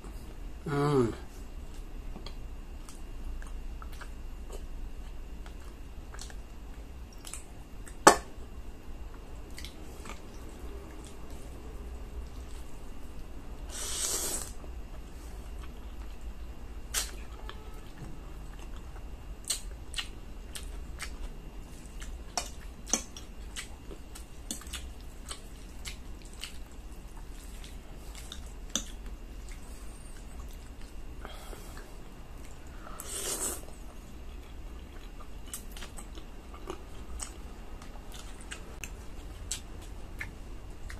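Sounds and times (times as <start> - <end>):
chewing: 9.5 - 11.5, 16.9 - 31.0, 31.7 - 40.9
short hissing burst: 13.7 - 14.5.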